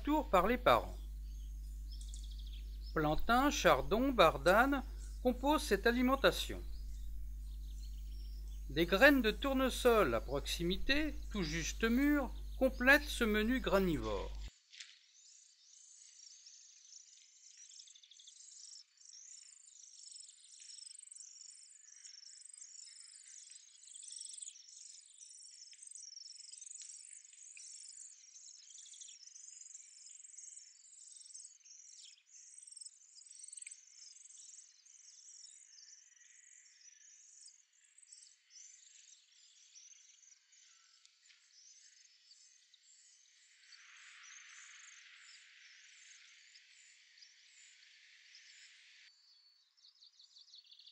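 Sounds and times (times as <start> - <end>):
nestlings cheeping: 0.0 - 14.5.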